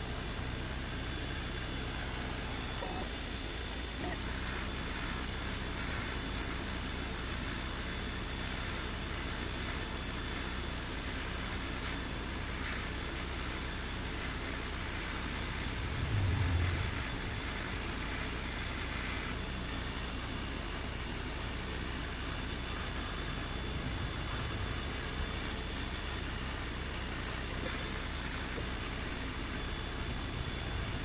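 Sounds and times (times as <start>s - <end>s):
laser engraver humming: 0.0s - 31.0s
air assist hissing: 4.0s - 31.0s
brief low hum: 15.7s - 18.8s.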